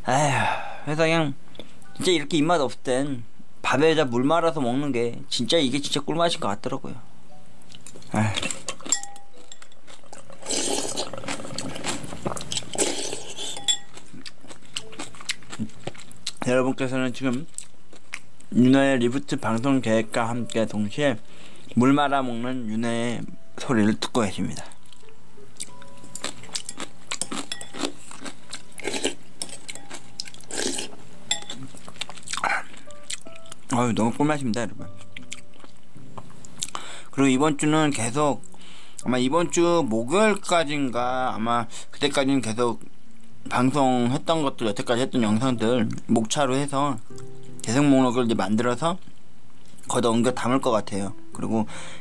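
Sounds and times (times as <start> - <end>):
wet eating sounds: 7.7 - 9.0, 9.7 - 16.4, 24.8 - 33.6
chewing: 7.7 - 16.4, 24.6 - 33.6, 35.0 - 35.8
spoon clinking on ceramic bowl: 8.8 - 9.9, 13.5 - 14.0, 26.2 - 27.9, 31.3 - 31.6.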